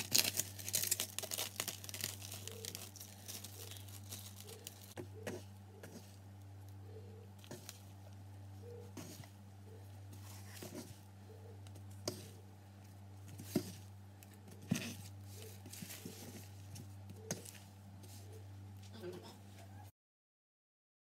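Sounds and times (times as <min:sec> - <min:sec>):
sticky dough handling: 0:00.0 - 0:18.9
steady low hum: 0:00.0 - 0:19.9.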